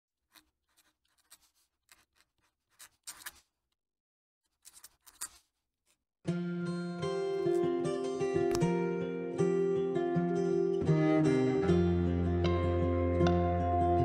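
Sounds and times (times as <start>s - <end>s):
fountain pen scratching on paper: 0.2s - 3.5s, 4.5s - 5.6s
acoustic guitar music: 6.3s - 14.0s.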